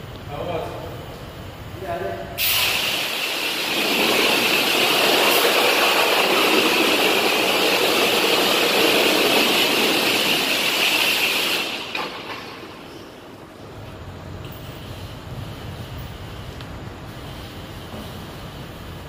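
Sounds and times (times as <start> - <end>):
high-pressure water spray hissing: 2.4 - 13.3.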